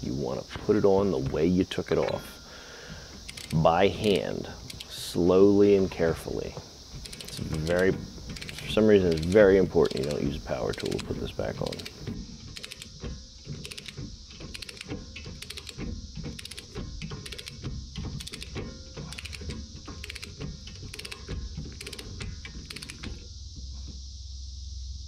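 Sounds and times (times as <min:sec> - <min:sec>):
torque wrench ratchet clicking: 0:03.2 - 0:05.0, 0:07.0 - 0:12.9, 0:13.6 - 0:17.6, 0:18.2 - 0:23.2.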